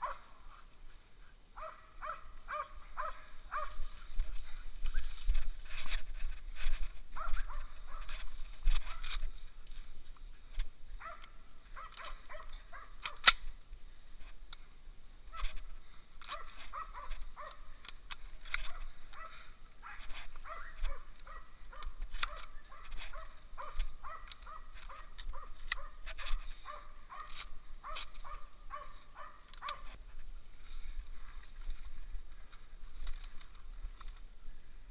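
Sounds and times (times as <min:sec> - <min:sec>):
dog barking: 0:00.0 - 0:00.3, 0:01.6 - 0:03.8, 0:07.2 - 0:08.2, 0:11.0 - 0:13.2, 0:16.3 - 0:17.6, 0:19.1 - 0:26.0, 0:26.6 - 0:29.9
sharp snaps and crackles: 0:00.0 - 0:34.9.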